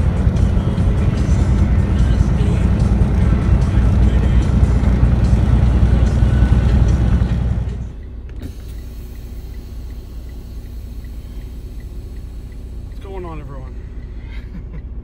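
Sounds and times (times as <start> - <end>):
engine hum inside cab: 0.0 - 15.0
truck road and engine rumble: 0.0 - 15.0
faint regular ticking: 7.9 - 15.0.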